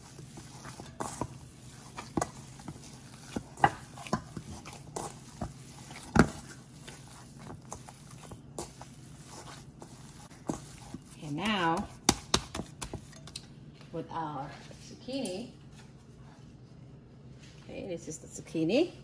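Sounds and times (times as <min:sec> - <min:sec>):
wet meat slapping in metal bowl: 0:00.0 - 0:13.4.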